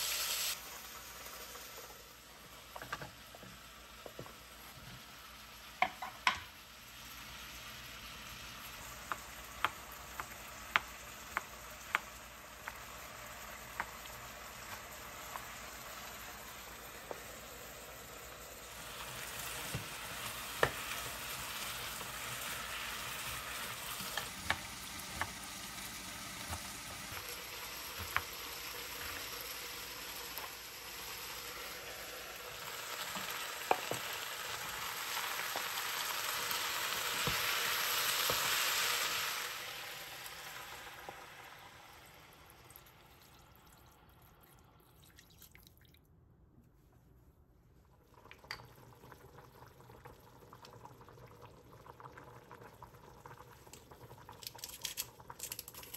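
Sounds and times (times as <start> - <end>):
vegetables sizzling in oil: 0.0 - 43.2
wooden spatula knocking pot: 5.8 - 6.4.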